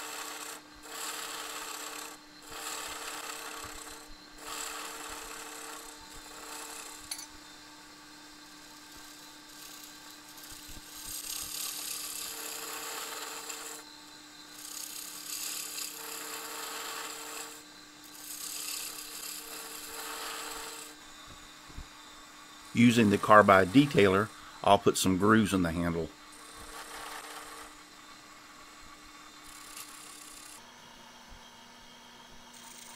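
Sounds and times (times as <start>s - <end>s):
turning tool cutting wood: 0.0s - 7.2s, 8.4s - 21.0s, 22.6s - 27.9s, 29.3s - 30.6s
wood lathe humming: 0.2s - 7.1s, 9.0s - 21.2s, 22.7s - 27.8s, 29.4s - 30.6s.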